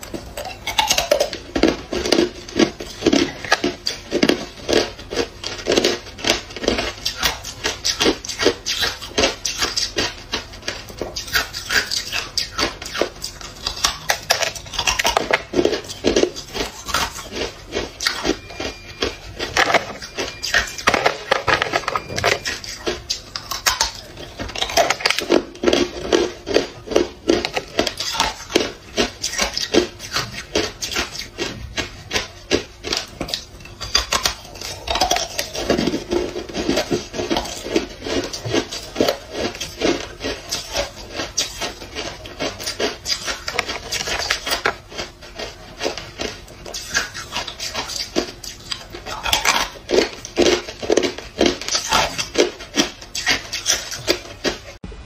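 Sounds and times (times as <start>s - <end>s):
ice being crunched by teeth: 11.1s - 54.6s.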